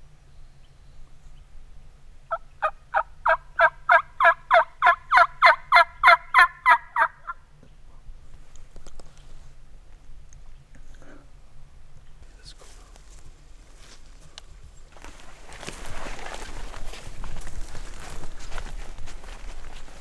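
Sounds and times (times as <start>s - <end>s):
turkey yelps: 2.3s - 7.4s.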